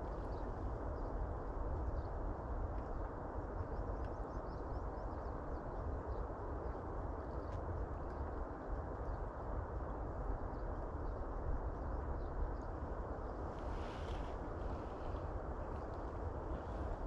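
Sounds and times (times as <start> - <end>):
wind: 0.0 - 17.0.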